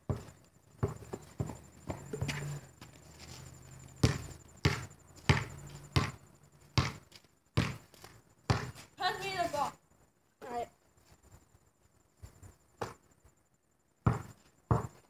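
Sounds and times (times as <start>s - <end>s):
basketball bouncing on ground: 0.0s - 3.0s, 3.9s - 8.9s, 12.8s - 13.0s, 14.0s - 15.0s.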